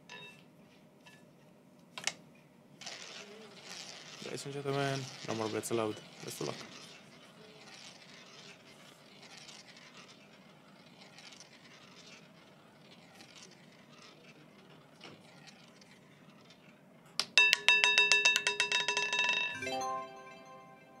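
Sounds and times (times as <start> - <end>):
lower electronic chime: 19.6 - 21.0.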